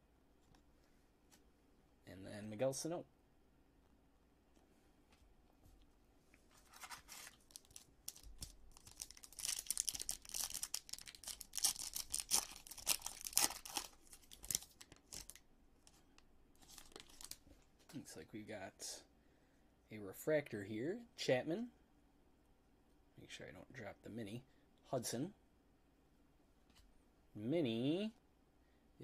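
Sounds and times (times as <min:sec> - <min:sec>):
foil wrapper tearing and crinkling: 0:06.7 - 0:15.4, 0:16.6 - 0:17.4.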